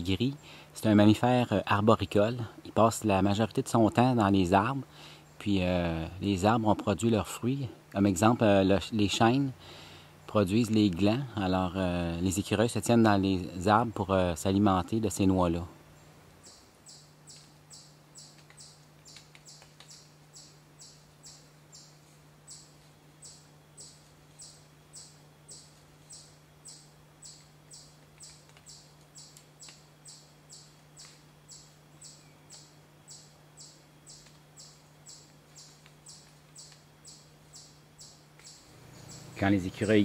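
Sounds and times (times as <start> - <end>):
steady low hum: 0.0 - 40.0
insect chirping: 0.1 - 0.7, 3.2 - 6.7, 15.8 - 40.0.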